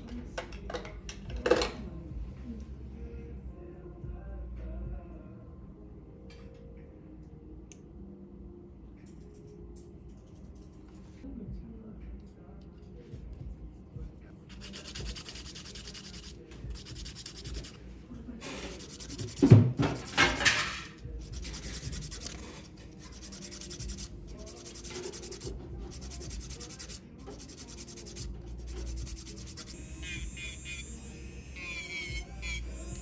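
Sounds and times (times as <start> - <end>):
nail file rasping: 14.5 - 17.8, 18.7 - 19.5, 21.2 - 22.4, 23.0 - 33.0.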